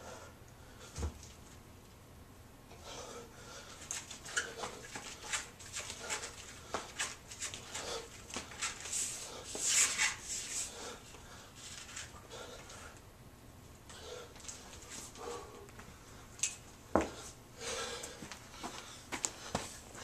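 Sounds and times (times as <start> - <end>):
man breathing hard: 0.0 - 1.1, 2.8 - 5.3, 7.6 - 9.6, 10.6 - 13.0, 13.9 - 16.3, 17.0 - 19.9.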